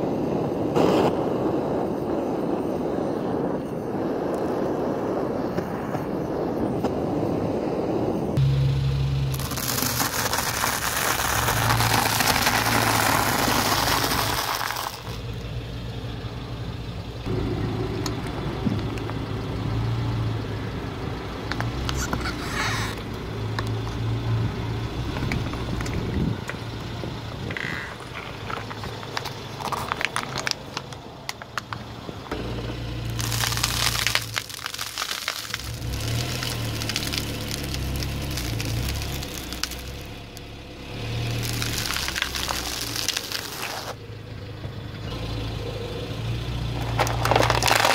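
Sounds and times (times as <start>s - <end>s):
car engine idling: 8.4s - 47.9s
car tyre crushing objects: 9.2s - 15.5s, 21.4s - 24.3s, 25.0s - 44.0s, 46.7s - 47.9s
dry noodles crunching: 9.3s - 15.2s, 33.0s - 40.1s, 41.4s - 44.0s, 46.9s - 47.9s.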